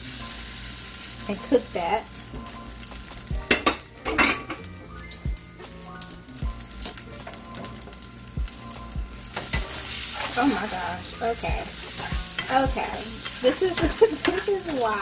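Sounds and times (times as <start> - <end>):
chicken sizzling in a frying pan: 0.0 - 15.0
metal tongs clicking against pan: 11.9 - 15.0.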